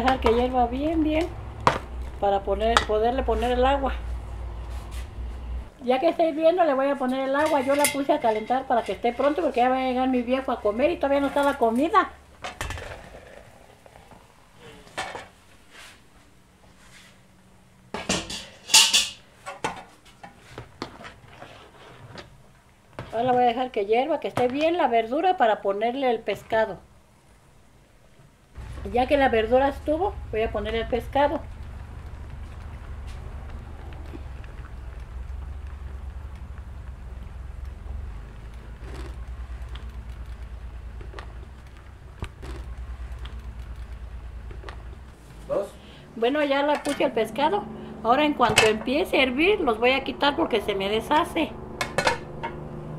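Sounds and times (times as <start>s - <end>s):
steady low rumble: 0.0s - 6.1s, 28.5s - 52.9s
metal cookware clattering: 7.1s - 9.8s, 18.0s - 19.8s, 51.8s - 52.6s.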